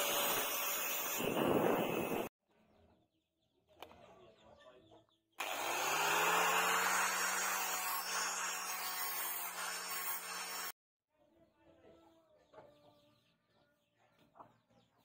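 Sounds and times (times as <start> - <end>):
angle grinder motor: 5.4 - 10.8.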